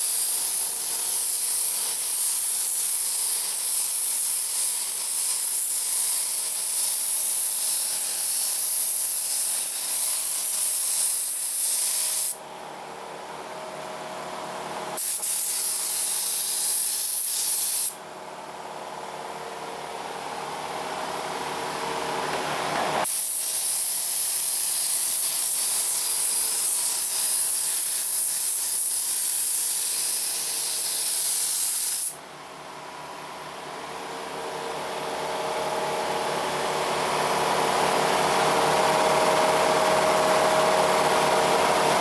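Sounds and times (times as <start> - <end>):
paint spray gun hissing: 0.0 - 12.4, 15.0 - 18.0, 23.0 - 32.2.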